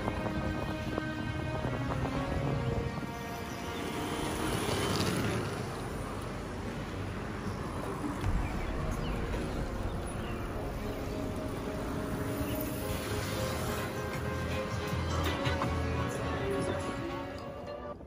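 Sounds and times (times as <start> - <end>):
electric bikes riding past: 0.0 - 16.5
low thump: 8.2 - 12.4.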